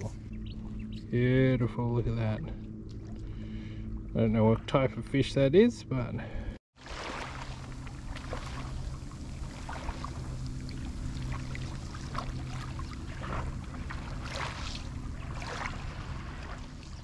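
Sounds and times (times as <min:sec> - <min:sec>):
steady low hum: 0:00.0 - 0:17.0
waves lapping on pebbles: 0:06.8 - 0:17.0.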